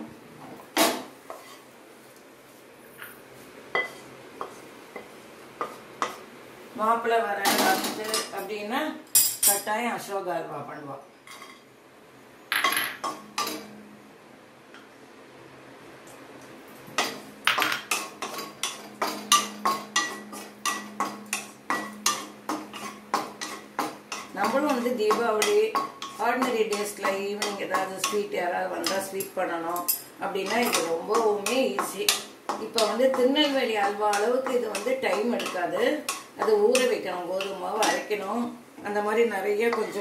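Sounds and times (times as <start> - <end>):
utensils knocking and clinking: 17.5 - 20.2.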